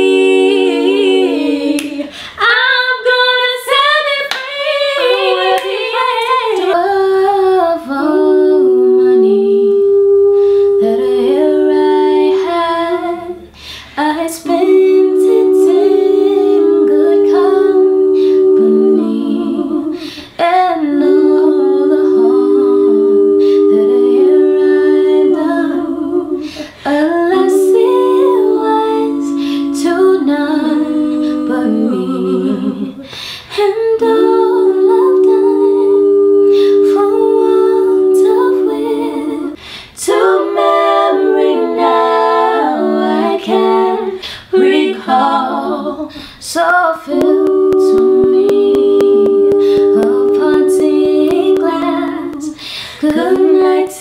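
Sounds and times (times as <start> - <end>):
women humming in harmony: 4.7 - 54.0.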